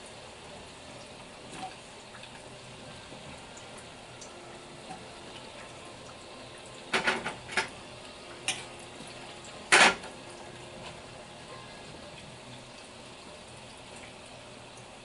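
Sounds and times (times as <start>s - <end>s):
utensil knocking pans: 6.9s - 7.8s, 9.7s - 10.1s.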